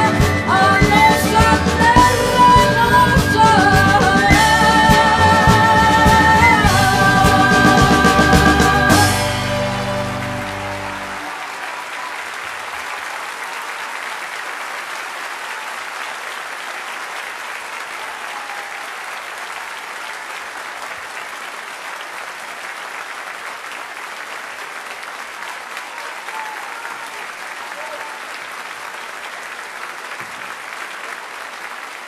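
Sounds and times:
band's last chord: 0.0 - 11.3
audience applauding: 0.0 - 32.0.

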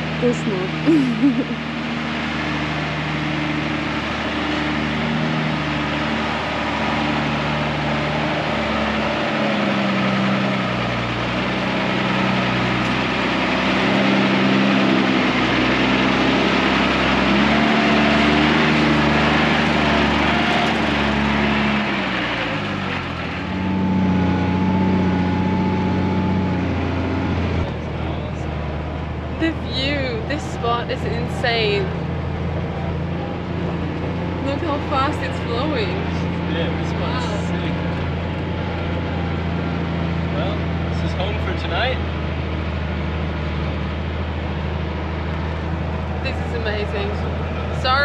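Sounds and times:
diesel truck engine: 0.0 - 48.0.

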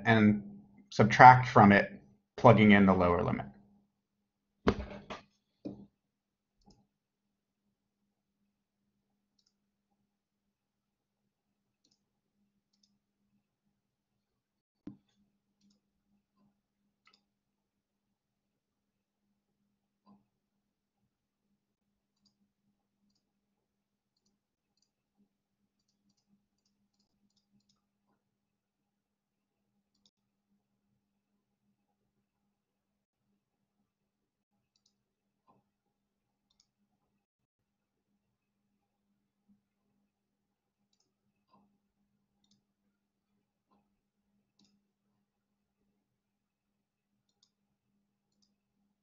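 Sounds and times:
faint irregular clicks: 9.3 - 10.0, 11.8 - 13.4, 14.8 - 17.4, 19.6 - 20.4, 21.0 - 28.3, 29.8 - 30.6, 34.6 - 35.8, 36.4 - 37.3, 40.8 - 46.0, 47.2 - 48.9.

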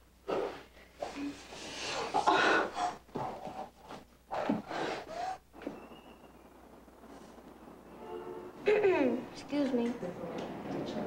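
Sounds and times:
person breathing hard and gasping: 1.0 - 3.0.

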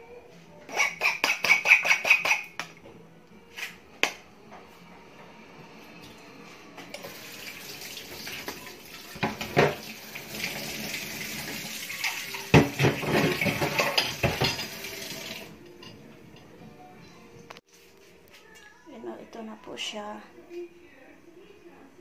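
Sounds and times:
tap running into sink: 8.1 - 15.4
metal pots clanking: 8.4 - 10.7, 11.4 - 16.6.

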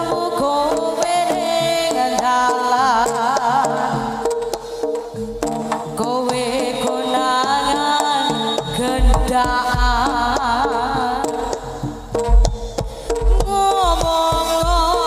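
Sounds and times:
ringing metal percussion: 7.8 - 9.9
deep drum beats: 8.7 - 15.0
hand drum strokes: 12.1 - 15.0.

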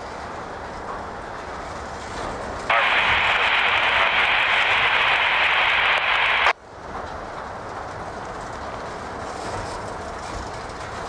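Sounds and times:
freight train rolling: 0.0 - 11.0
radio static hiss: 2.7 - 6.6.

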